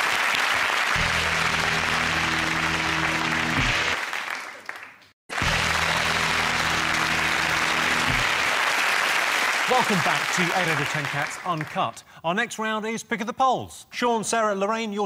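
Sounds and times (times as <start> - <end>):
studio audience applauding: 0.0 - 12.0
theme music held chord: 1.0 - 4.0, 5.3 - 8.6.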